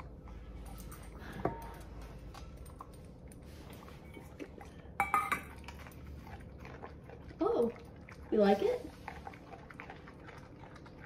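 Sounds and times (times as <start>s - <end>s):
dog chewing: 1.9s - 11.0s
metal bowl clattering: 5.0s - 6.0s.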